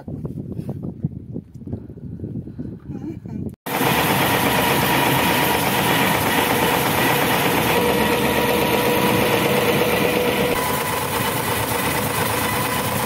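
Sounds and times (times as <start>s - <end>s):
boat engine humming: 3.7s - 13.0s.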